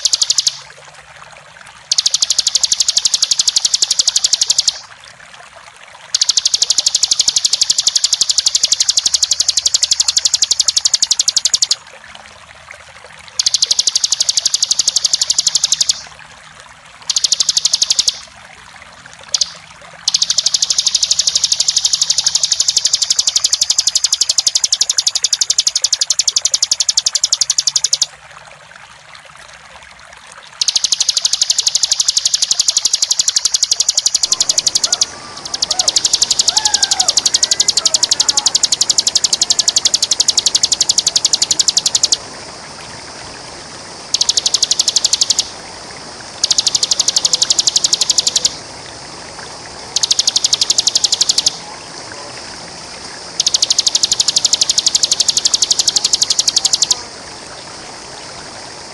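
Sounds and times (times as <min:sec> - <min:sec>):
bird singing rapid trill: 0:00.0 - 0:00.6, 0:01.9 - 0:04.9, 0:06.2 - 0:11.8, 0:13.4 - 0:16.1, 0:17.1 - 0:18.3, 0:19.2 - 0:28.1, 0:30.6 - 0:42.2, 0:44.1 - 0:45.5, 0:46.4 - 0:48.6, 0:50.0 - 0:51.6, 0:53.4 - 0:57.0
running water rushing: 0:00.0 - 0:58.9.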